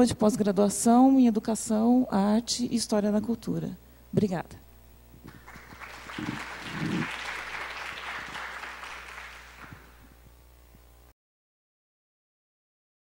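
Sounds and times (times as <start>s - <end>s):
audience applauding: 5.3s - 10.0s.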